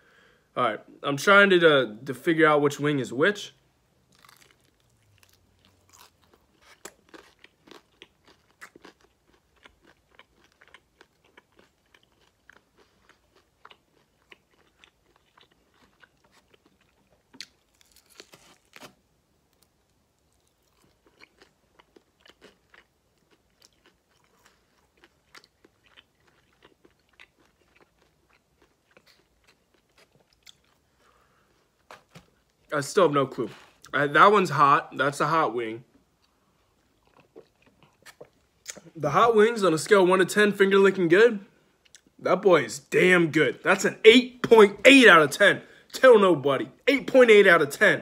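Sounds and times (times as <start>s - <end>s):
person chewing chicken wings: 4.1s - 18.9s, 20.3s - 32.2s, 36.2s - 38.9s
mouth clicks and crunches: 37.0s - 39.0s.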